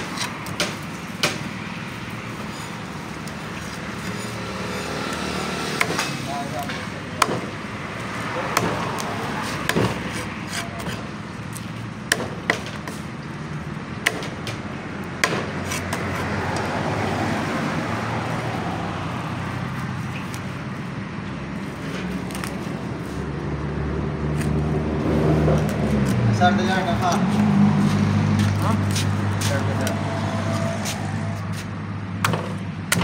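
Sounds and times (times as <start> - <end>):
knife scraping fish: 9.0 - 11.6.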